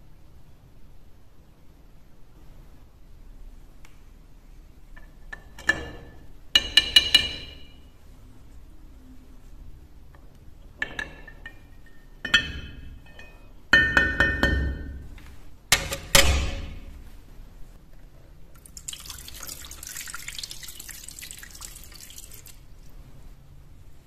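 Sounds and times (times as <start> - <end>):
metal knocking against glass jar: 10.8 - 15.0.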